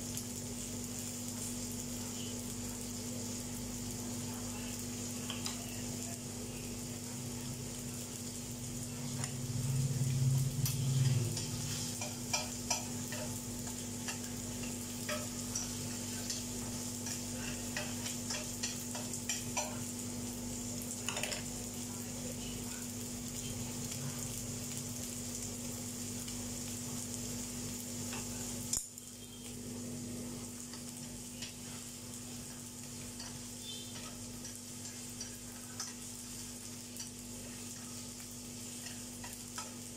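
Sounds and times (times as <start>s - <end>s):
rice sizzling in frying pan: 0.0s - 39.9s
small crackles and pops: 22.9s - 29.6s.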